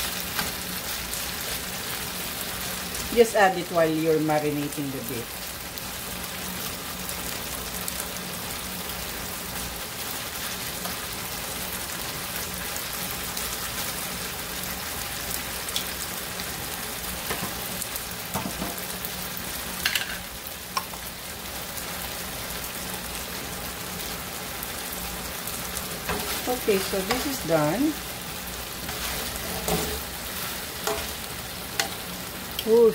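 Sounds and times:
meat sizzling in oil: 0.0 - 32.9
metal tongs clicking on pan: 30.9 - 31.1, 31.8 - 32.0.

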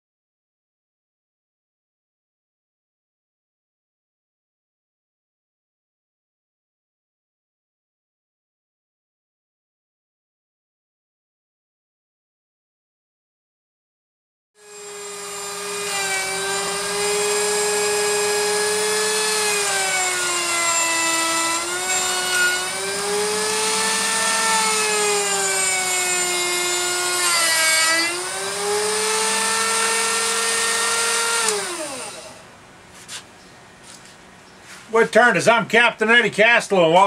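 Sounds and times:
lathe motor whining: 14.6 - 32.5.

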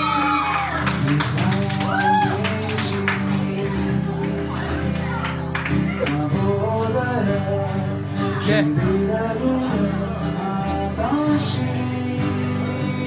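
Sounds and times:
man singing: 0.0 - 4.2, 5.9 - 13.0
acoustic guitars strummed: 0.0 - 13.0.

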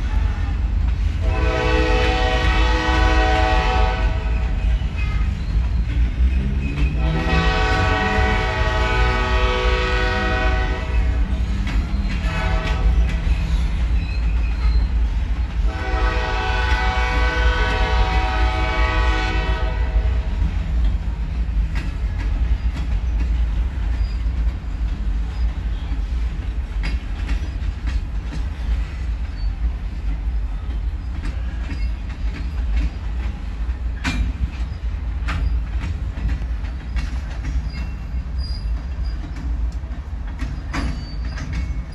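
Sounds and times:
wheels clicking over rail joints: 0.0 - 19.7, 20.3 - 41.9
freight train rumbling past: 0.0 - 41.9
locomotive horn blasts: 1.2 - 4.6, 6.9 - 11.2, 12.2 - 13.0, 15.6 - 20.4.

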